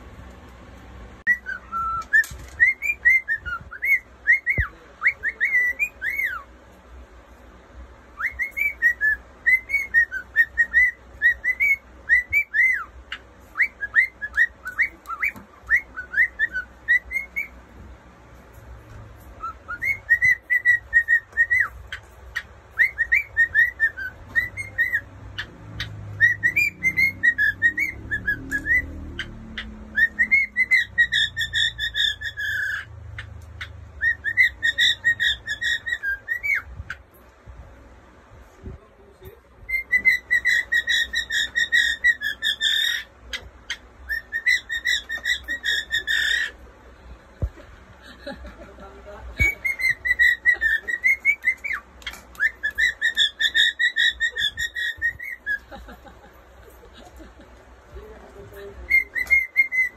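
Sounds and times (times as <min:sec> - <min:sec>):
cockatiel whistling: 0:01.3 - 0:06.5, 0:08.2 - 0:17.6, 0:19.4 - 0:37.0, 0:39.6 - 0:46.6, 0:49.4 - 0:56.0, 0:58.9 - 0:59.9.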